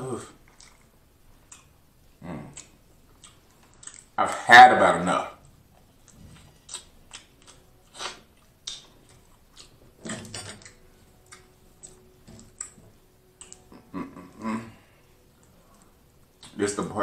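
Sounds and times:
crab shell snapping and crackling: 6.0s - 13.9s.

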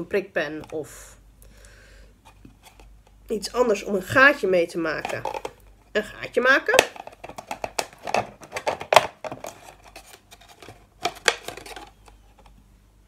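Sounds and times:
plastic bottle crackling: 4.9s - 5.7s, 6.7s - 12.6s.

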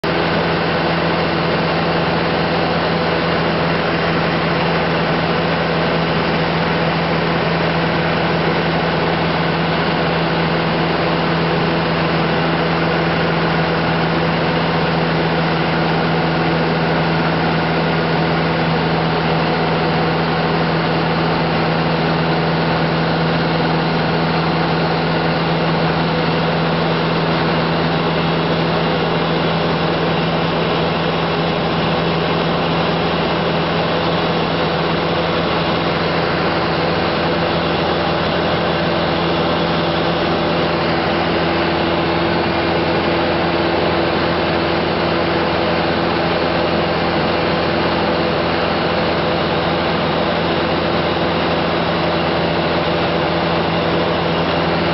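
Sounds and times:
light aircraft engine hum: 0.0s - 54.9s.

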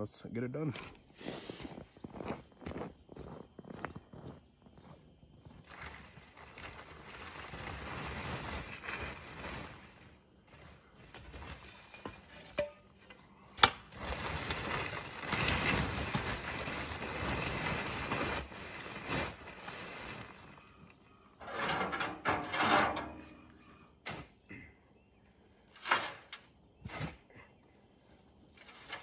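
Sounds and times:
plastic tarp rustling: 5.6s - 12.7s, 13.6s - 20.9s.

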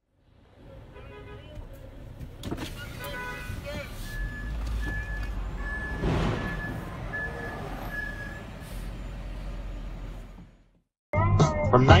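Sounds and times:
truck backup alarm beeping: 3.8s - 10.3s.

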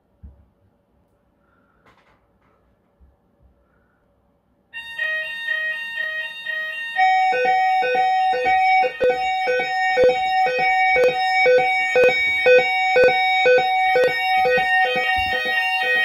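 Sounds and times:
low alarm beeping: 4.8s - 16.0s
steady high alarm tone: 4.8s - 16.0s
two-tone alarm sounders: 4.8s - 16.0s.

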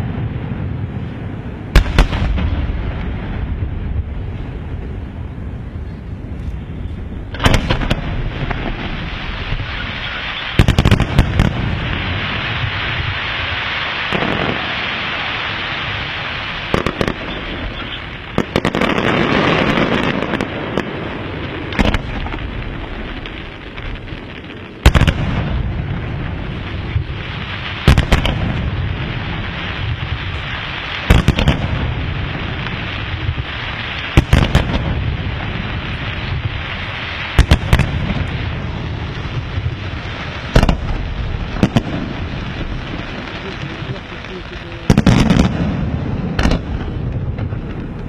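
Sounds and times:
fireworks hissing and crackling: 0.0s - 48.0s
firework shells bursting: 39.4s - 48.0s.

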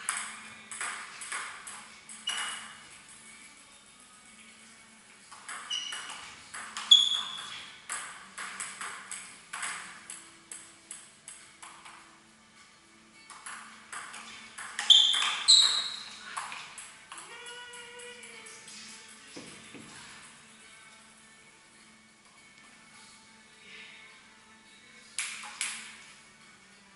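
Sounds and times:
table tennis ball clicks: 0.0s - 2.8s, 5.3s - 12.0s, 25.2s - 26.0s.

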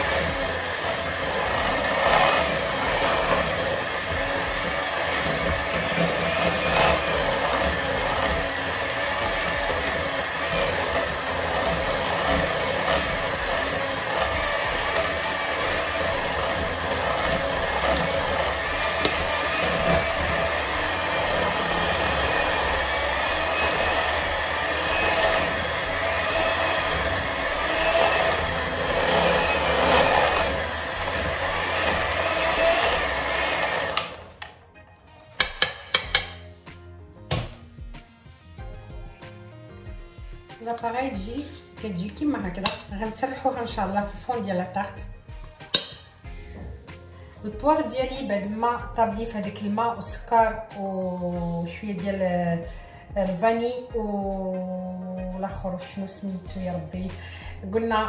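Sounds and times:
electric hand mixer whisking batter: 0.0s - 34.6s.

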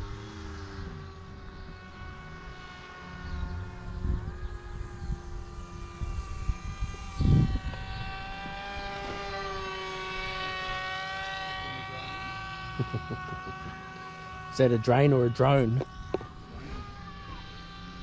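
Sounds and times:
model aircraft motor droning: 0.0s - 18.0s
wind buffeting microphone: 3.4s - 11.1s.

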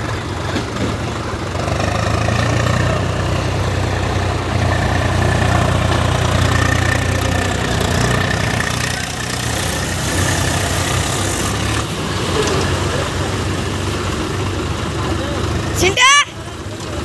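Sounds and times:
tractor diesel engines running: 0.0s - 17.0s.

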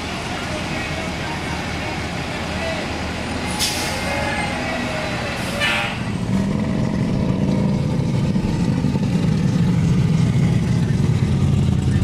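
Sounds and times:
bus engine rumble: 0.0s - 12.0s
street traffic: 0.0s - 12.0s
bus air brake hisses: 3.5s - 4.2s.

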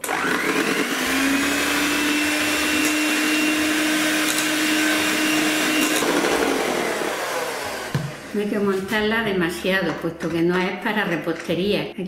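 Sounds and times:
beaters whipping cream in a bowl: 0.0s - 8.4s
electric hand mixer whine: 0.0s - 8.7s.

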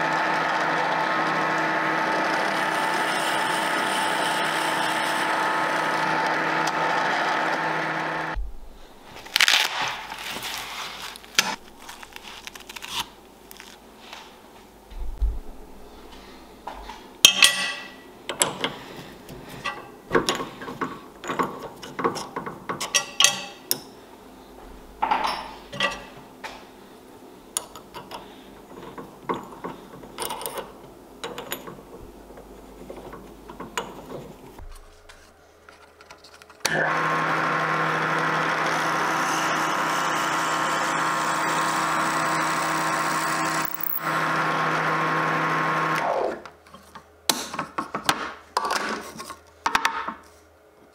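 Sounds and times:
drill press motor running: 0.0s - 8.4s, 36.6s - 46.5s
drill bit drilling into wood: 36.7s - 46.3s.

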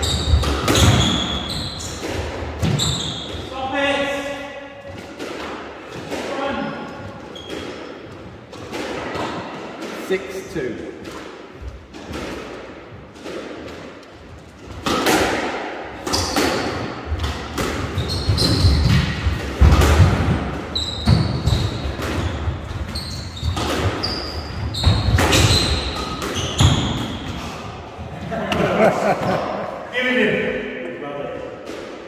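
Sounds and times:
shoes squeaking on wooden floor: 0.0s - 3.5s, 6.8s - 9.6s, 17.8s - 19.4s, 20.6s - 27.6s
squash ball hitting racquets and walls: 0.0s - 29.8s, 31.4s - 32.0s.

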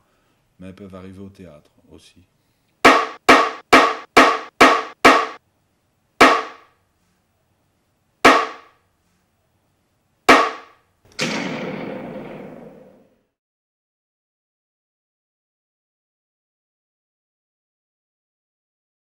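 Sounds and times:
mallet knocking metal sheet: 2.8s - 5.4s, 6.2s - 6.7s, 8.3s - 8.7s, 10.3s - 12.9s.

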